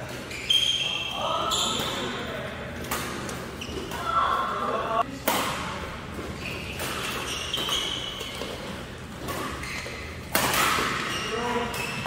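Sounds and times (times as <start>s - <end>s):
shoes squeaking on floor: 0.0s - 2.2s, 3.3s - 5.0s, 6.2s - 12.0s
rackets hitting shuttlecock: 2.8s - 4.2s, 5.2s - 12.0s.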